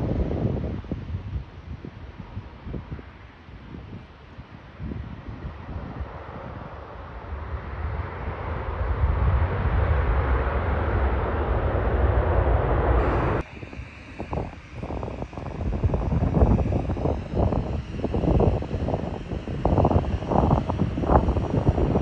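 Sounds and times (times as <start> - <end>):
wind buffeting microphone: 0.0 - 22.0
jet engines roaring: 5.4 - 22.0.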